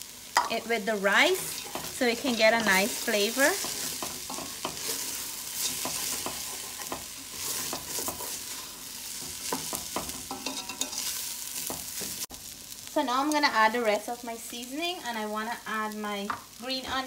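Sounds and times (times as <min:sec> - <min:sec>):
food sizzling in oil: 0:00.0 - 0:17.0.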